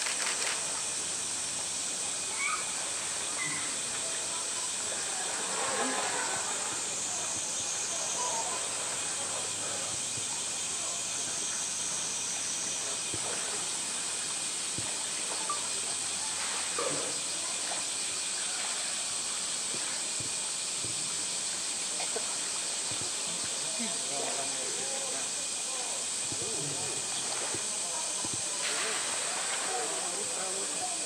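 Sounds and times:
hiss of moving water: 0.0 - 31.0
bear splashing in water: 27.0 - 30.7.

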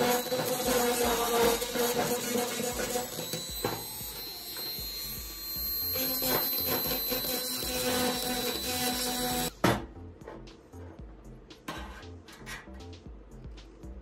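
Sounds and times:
die grinder grinding metal: 0.0 - 9.5.

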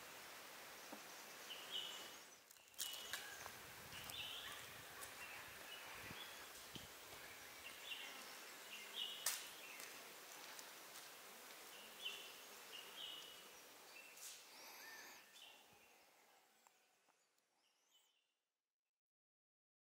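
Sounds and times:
faint natural ambience: 0.0 - 18.2.

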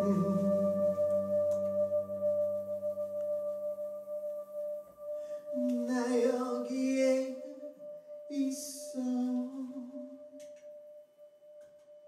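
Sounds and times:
man singing long notes: 0.0 - 1.1, 5.6 - 10.4.

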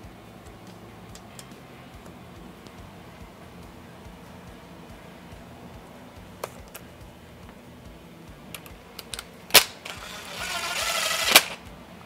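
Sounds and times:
impact driver running: 8.6 - 11.7.

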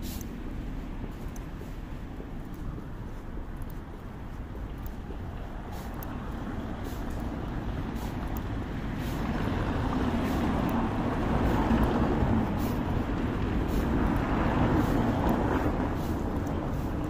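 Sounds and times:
motor vehicle rumble: 0.0 - 17.0.

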